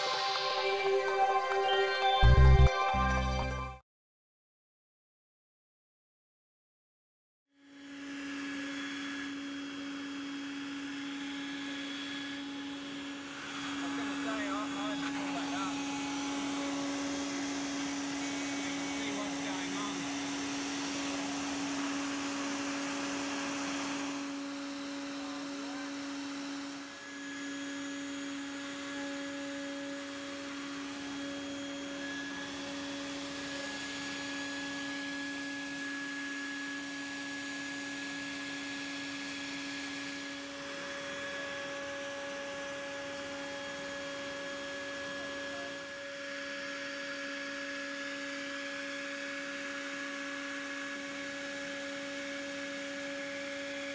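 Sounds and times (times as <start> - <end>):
router spindle whine: 0.0 - 3.5, 7.6 - 53.9.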